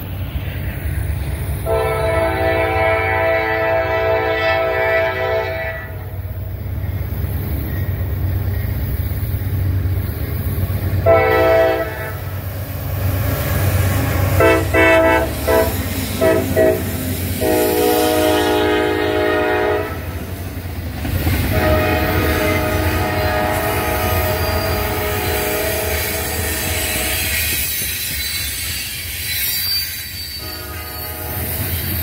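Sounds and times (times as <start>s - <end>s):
train rolling past: 0.0s - 32.0s
locomotive air horn blasts: 1.6s - 6.2s, 11.0s - 12.4s, 14.4s - 20.2s, 21.4s - 27.4s, 30.4s - 31.7s.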